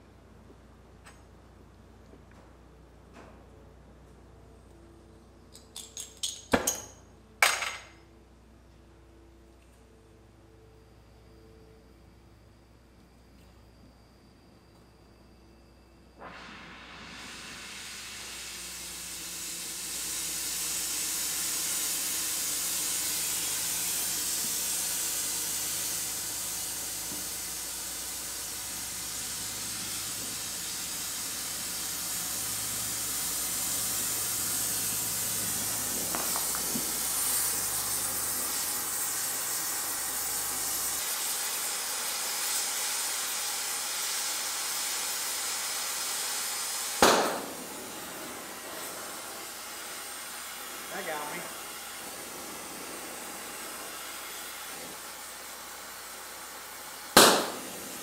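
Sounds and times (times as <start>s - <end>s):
gas torch hissing: 16.0s - 58.0s
sharp loud pop: 47.0s - 47.6s, 57.2s - 57.8s.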